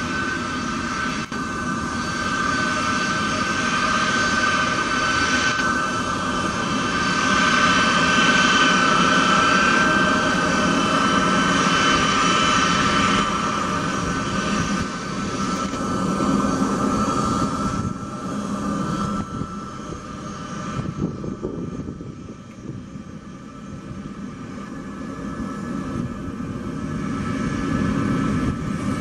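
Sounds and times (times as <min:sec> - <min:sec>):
jet engines whine and rumble: 0:00.0 - 0:29.0.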